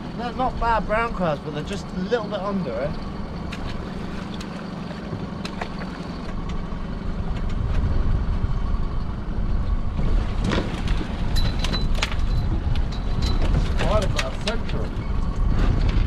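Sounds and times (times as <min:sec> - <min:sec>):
outboard motor idling: 0:00.0 - 0:16.0.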